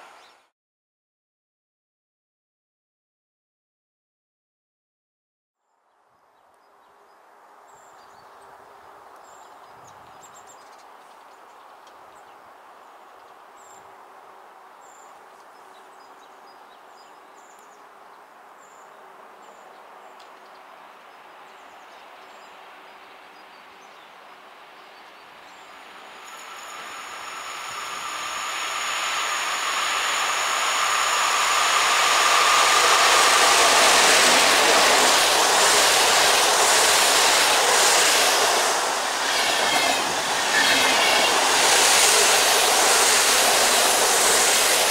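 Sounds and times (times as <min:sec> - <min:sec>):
distant train: 0:22.6 - 0:44.9.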